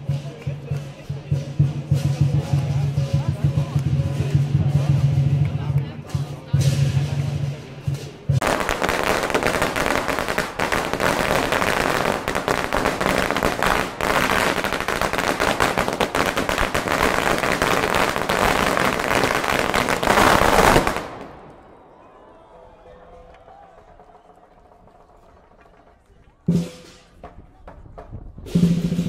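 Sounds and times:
firecrackers rattling bangs: 0:00.1 - 0:21.7.

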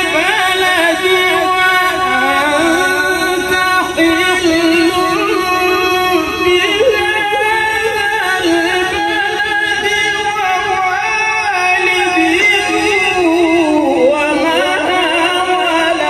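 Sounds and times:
melodic recitation through loudspeakers: 0:00.0 - 0:16.0.

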